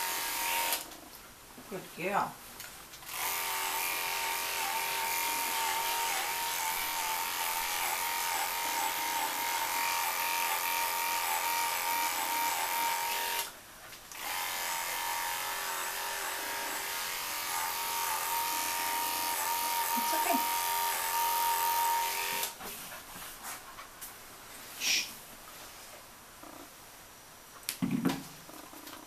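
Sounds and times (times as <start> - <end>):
electric clippers whining: 0.0 - 0.9, 3.0 - 13.5, 14.1 - 22.6.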